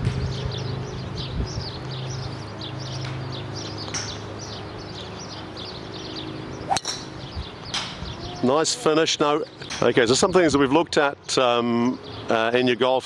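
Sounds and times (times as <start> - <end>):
bird chirping: 0.2 - 8.6.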